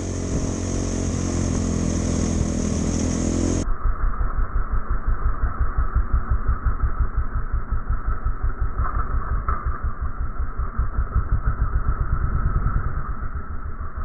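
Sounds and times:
dirt bike engine running: 0.0s - 3.6s, 4.6s - 14.0s
tyre and wind noise: 10.7s - 14.0s.

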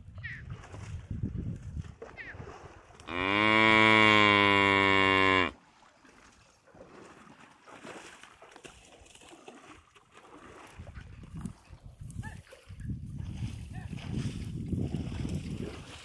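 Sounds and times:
water buffalo mooing: 3.0s - 5.6s.

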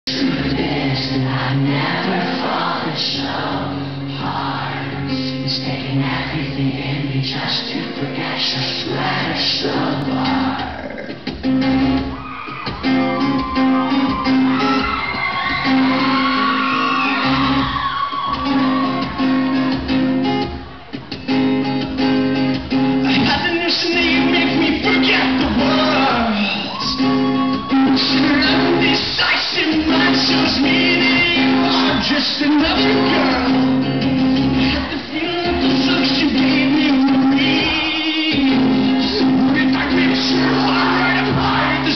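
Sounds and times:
acoustic guitars playing chords: 0.0s - 41.9s
person singing: 23.0s - 41.9s.

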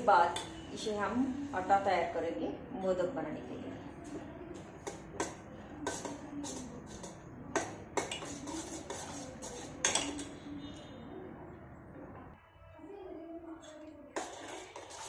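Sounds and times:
spoon stirring in metal pot: 0.0s - 0.9s, 4.0s - 10.9s, 13.6s - 15.0s.

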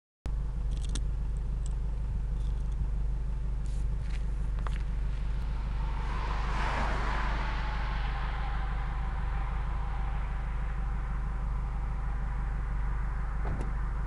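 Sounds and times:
car exhaust idling rumble: 0.3s - 14.0s
car passing by: 4.8s - 14.0s.

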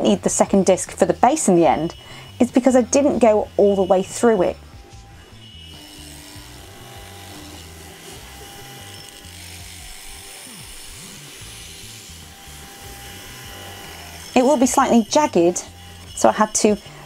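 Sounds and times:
background music with bass line: 2.7s - 8.9s.

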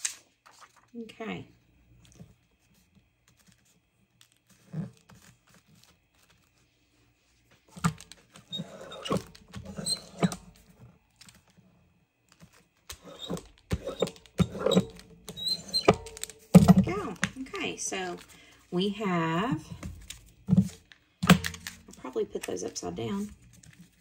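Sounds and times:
paper rustling: 0.0s - 0.9s, 3.2s - 8.5s
rubber roller rolling over paper: 13.0s - 18.2s.

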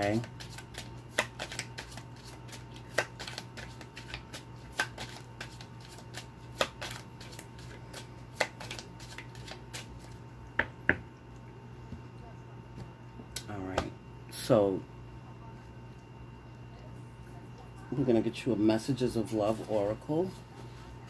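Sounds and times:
cards being shuffled by hand: 0.0s - 10.2s.

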